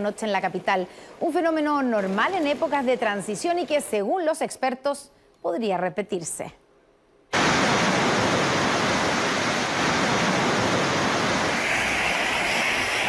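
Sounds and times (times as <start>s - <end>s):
heavy rain pouring: 7.4s - 13.0s.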